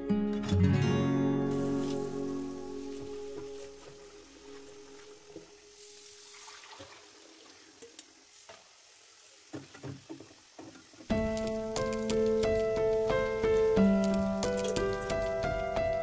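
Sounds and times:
background music: 0.0 - 5.9, 11.1 - 16.0
tap water running: 1.5 - 15.3.

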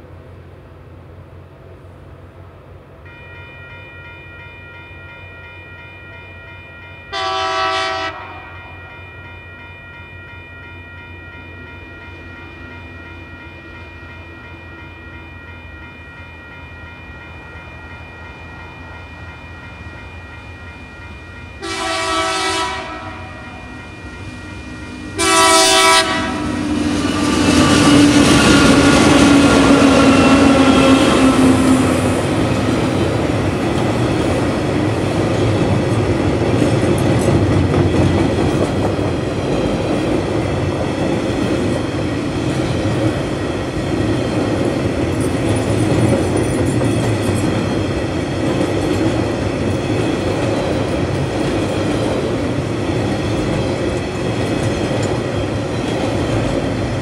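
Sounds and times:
train wheel and rail noise: 0.0 - 57.0
train horn blasts: 7.1 - 8.8, 21.6 - 23.7, 24.9 - 32.4.

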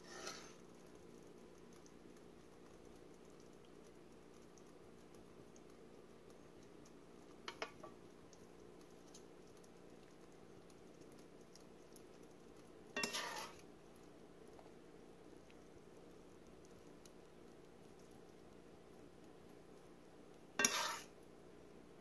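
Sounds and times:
faint steady hum: 0.0 - 22.0
metal spoon clinking on a plate: 13.0 - 13.5, 20.6 - 21.0.

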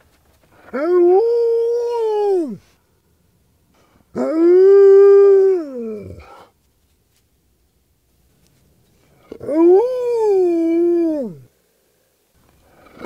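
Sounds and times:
dog howling: 9.3 - 11.5.

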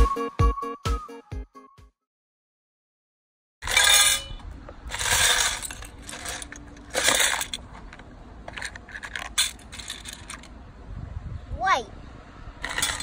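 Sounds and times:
plastic toy bricks clattering: 3.6 - 10.5, 12.6 - 13.0.

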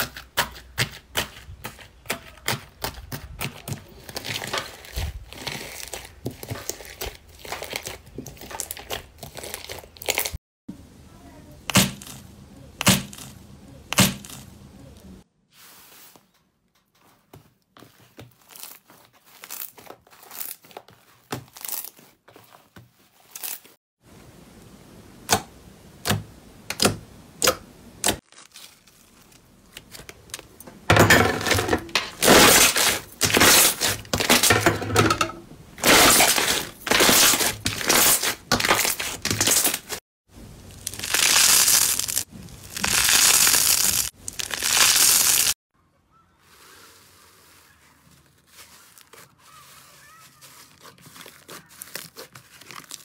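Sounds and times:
slime air pockets crackling: 32.2 - 34.5, 40.6 - 45.6, 47.6 - 53.0
hands squeezing sticky slime: 40.8 - 45.5.

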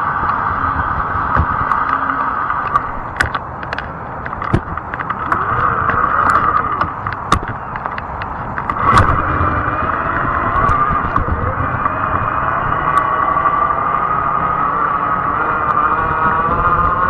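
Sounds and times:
e-bike motor and tyre whine: 0.0 - 17.0
clicks and rattles from bumps: 1.3 - 13.2.

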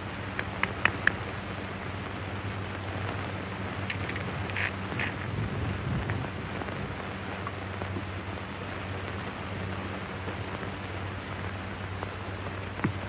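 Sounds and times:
film soundtrack hiss: 0.0 - 13.0
low hum: 0.0 - 13.0
faint ticks: 0.3 - 1.2.

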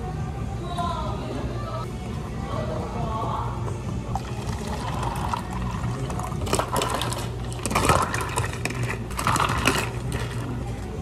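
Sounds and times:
steady low hum: 0.0 - 11.0
liquid pouring over ice: 4.1 - 10.4
ice clinking and crackling: 4.2 - 10.6.

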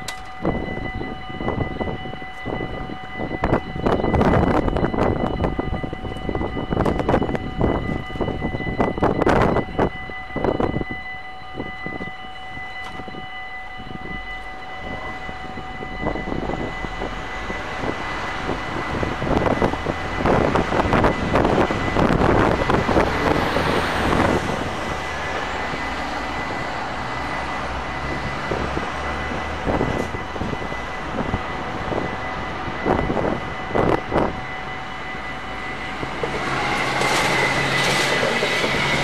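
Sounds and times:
level crossing warning bells: 0.0 - 39.0
rushing noise: 14.0 - 39.0.

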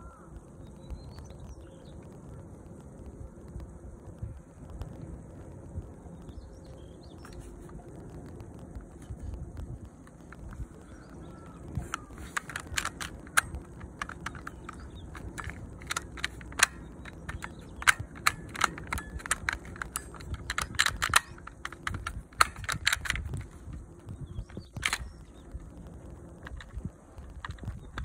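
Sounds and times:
magazine snapping out: 8.8 - 28.0
toy pistol clicking: 10.0 - 28.0.

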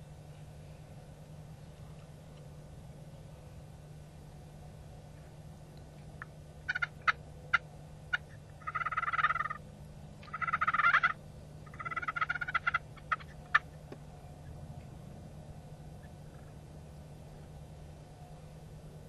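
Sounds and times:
turkey gobbling: 6.2 - 9.6, 10.2 - 14.6, 16.0 - 16.6.

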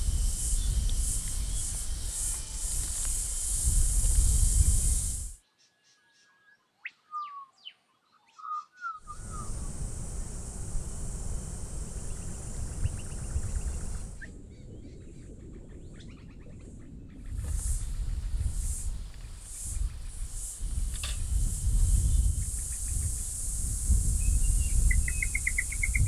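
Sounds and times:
high-pitched hiss: 0.0 - 5.4, 9.0 - 14.4, 17.3 - 26.0
wind rumbling on microphone: 0.0 - 5.4, 9.0 - 26.0.

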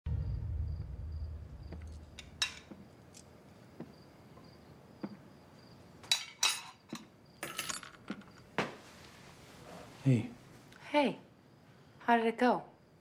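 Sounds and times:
crickets chirping: 0.1 - 13.0
dishes and cutlery clinking: 6.0 - 8.3.

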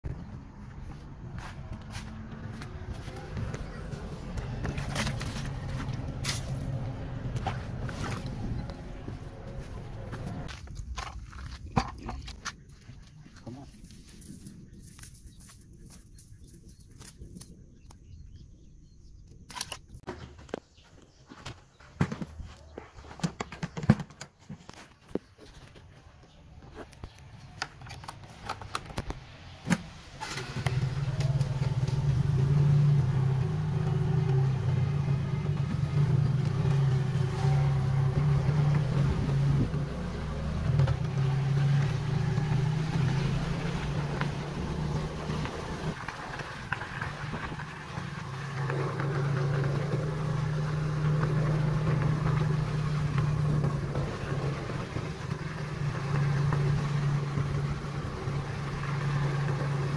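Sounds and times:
scooter engine running: 0.1 - 10.5, 30.2 - 59.9.

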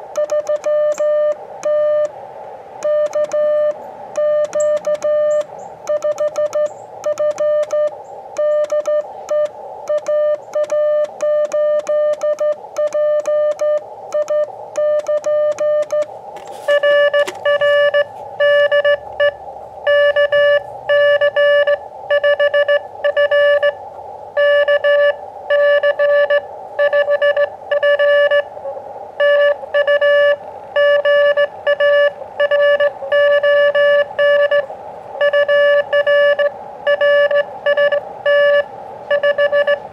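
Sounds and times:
faint receiver hiss: 0.0 - 18.4
morse code tone: 0.1 - 2.2, 2.8 - 23.8, 24.4 - 28.6, 29.2 - 39.9.

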